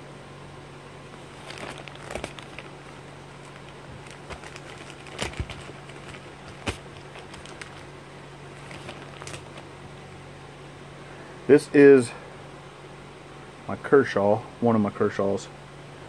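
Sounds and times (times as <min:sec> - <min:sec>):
package rustling: 0:01.2 - 0:09.7.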